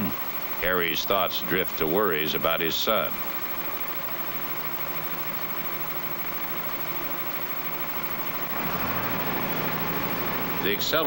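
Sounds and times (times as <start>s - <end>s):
diesel engine idling: 8.3s - 11.0s.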